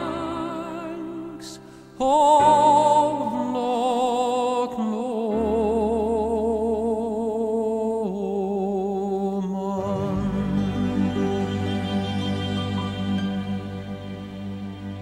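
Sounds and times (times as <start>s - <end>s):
tenor singing with vibrato: 0.0s - 15.0s
soft accompaniment: 9.8s - 15.0s.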